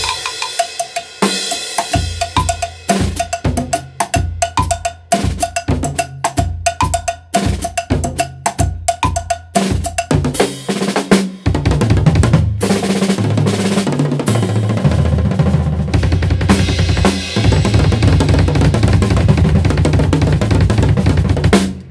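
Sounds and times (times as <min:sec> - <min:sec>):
drum kit solo: 0:00.0 - 0:21.9
double-pedal bass drum strokes: 0:14.3 - 0:21.6.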